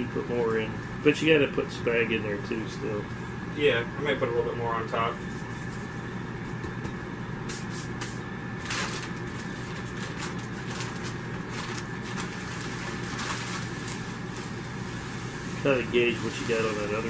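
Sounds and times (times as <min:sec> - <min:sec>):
steady background hum: 0:00.0 - 0:17.0
plastic bag crinkling: 0:08.6 - 0:14.8.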